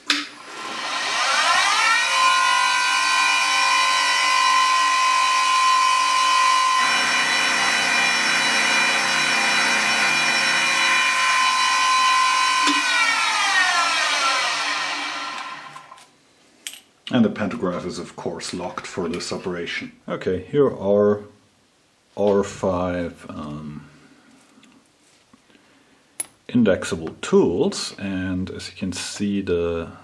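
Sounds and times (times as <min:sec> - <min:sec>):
end mill cutting metal: 0:00.4 - 0:15.9
machine spindle whining: 0:00.4 - 0:16.0.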